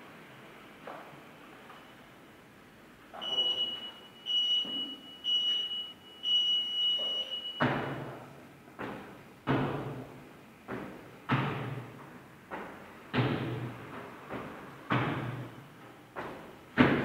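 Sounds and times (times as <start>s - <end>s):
interval timer beeps: 3.2s - 7.7s
feet landing on wooden box: 8.8s - 15.5s, 16.1s - 17.0s.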